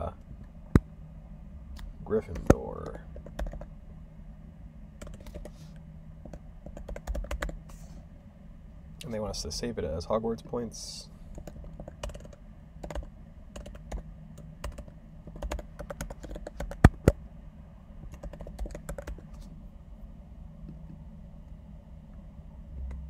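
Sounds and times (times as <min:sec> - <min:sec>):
faint low hum: 0:00.0 - 0:23.0
computer keyboard typing: 0:02.3 - 0:03.7, 0:05.0 - 0:05.5, 0:06.3 - 0:07.6, 0:11.3 - 0:17.2, 0:18.1 - 0:19.3.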